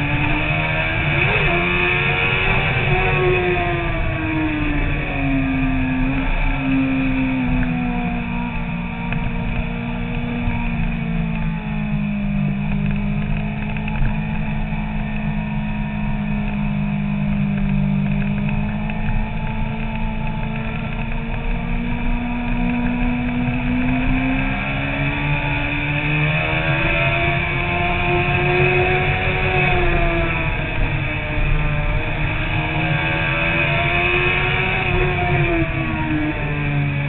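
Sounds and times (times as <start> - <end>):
motorcycle engine running: 0.0 - 37.0
wind rumble on microphone: 0.0 - 37.0.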